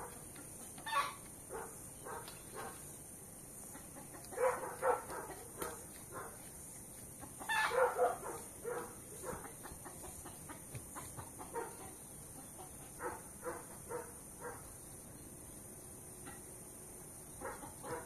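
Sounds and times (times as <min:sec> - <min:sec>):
farm animals calling: 0:00.0 - 0:02.9, 0:03.6 - 0:14.6.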